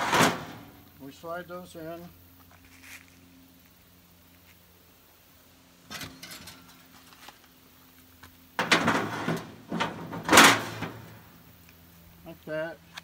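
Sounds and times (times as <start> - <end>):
metal grates scraping and clattering: 0.0 - 0.8, 5.9 - 7.4, 8.6 - 11.4.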